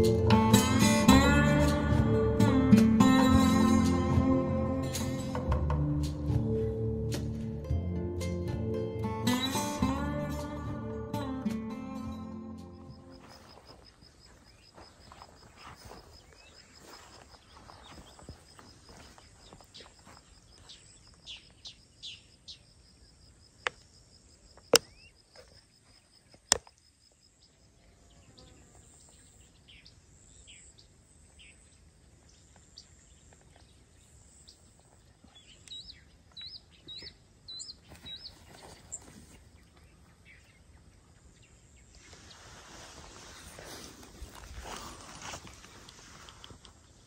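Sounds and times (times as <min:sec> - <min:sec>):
bird chirps: 0:24.7 - 0:45.4.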